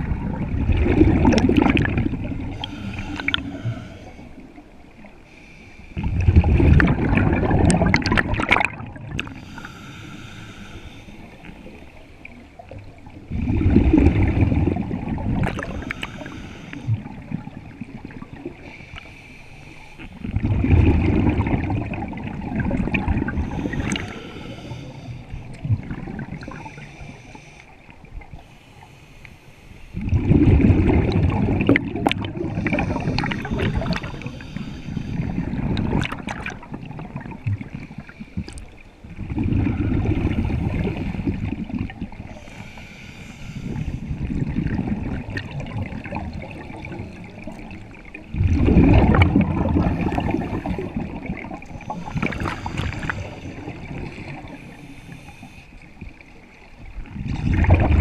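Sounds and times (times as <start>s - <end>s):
exhaled bubbles rumbling: 0.0s - 5.0s, 6.0s - 9.5s, 11.3s - 18.7s, 20.1s - 26.9s, 30.0s - 42.5s, 43.6s - 58.0s
regulator inhale hiss: 2.5s - 6.0s, 9.3s - 11.8s, 15.6s - 17.2s, 18.6s - 20.2s, 23.3s - 25.6s, 26.4s - 30.0s, 32.5s - 35.6s, 42.2s - 44.2s, 51.6s - 56.3s.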